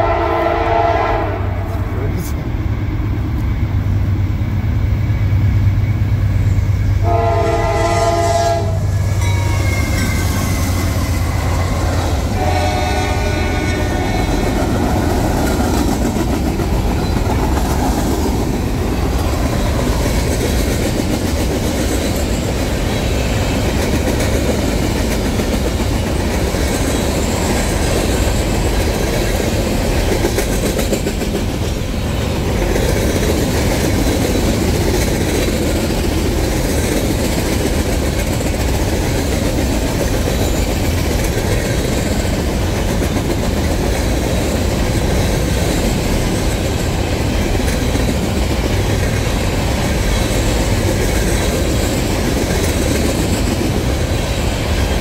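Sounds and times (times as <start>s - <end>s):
train air horn blasts: 0.0s - 1.9s, 7.0s - 10.4s, 12.3s - 14.6s
locomotive engine droning: 0.0s - 20.5s
train wheels rumbling on rails: 0.0s - 55.0s.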